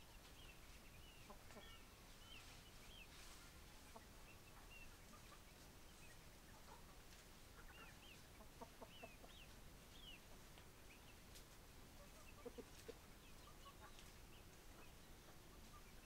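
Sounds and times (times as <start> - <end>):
chickens clucking faintly: 0.0 - 16.0.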